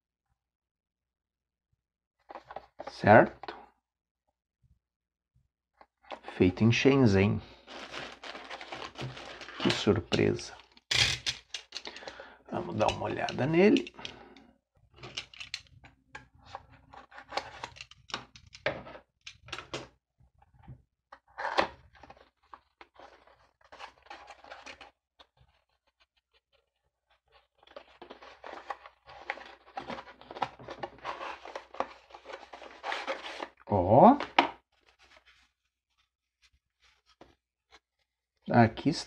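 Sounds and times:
cardboard rustling and scraping: 7.6 - 10.8, 16.4 - 18.0, 21.3 - 33.6, 34.2 - 38.0.

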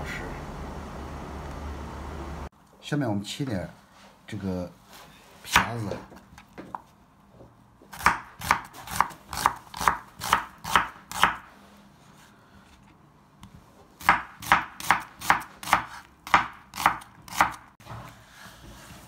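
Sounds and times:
knife chopping onion on board: 7.9 - 11.5, 14.0 - 17.7.

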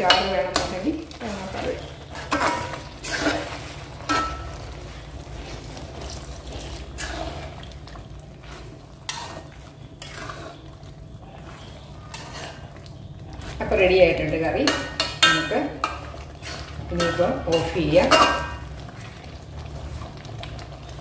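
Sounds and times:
metal ladle scraping a pot: 0.0 - 7.8, 8.4 - 12.8, 14.6 - 18.6.

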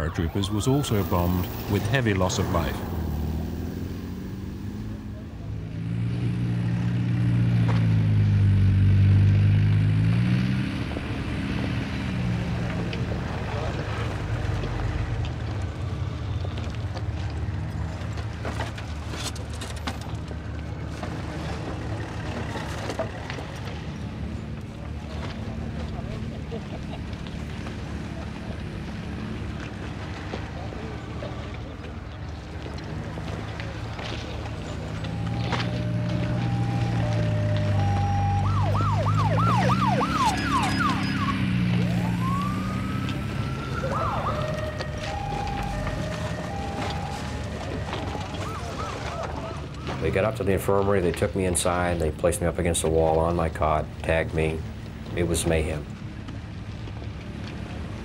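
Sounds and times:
emergency vehicle sirens: 0.0 - 58.0
low engine hum: 0.3 - 58.0.

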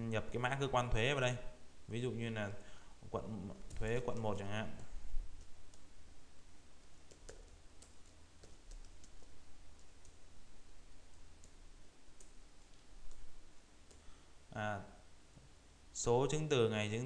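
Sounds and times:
low steady hum: 0.0 - 17.0.

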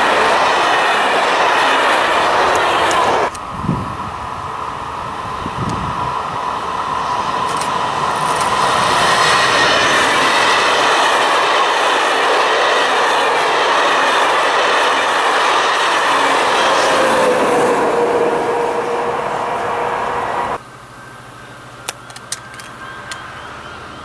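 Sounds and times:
high whine: 0.0 - 24.0
passenger train passing: 0.0 - 24.0.

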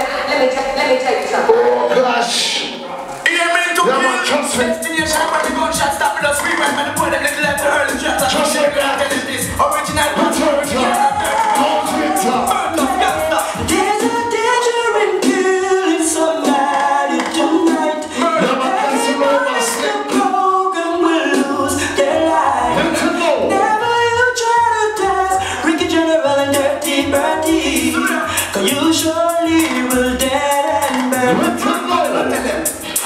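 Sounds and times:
reggae song with sung vocal: 0.0 - 33.0
pulsing bass: 4.6 - 14.4, 21.5 - 32.8.

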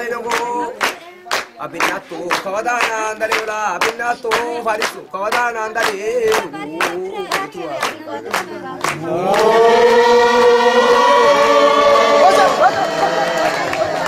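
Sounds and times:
hand claps: 0.2 - 11.0
men chanting together: 1.7 - 14.0.

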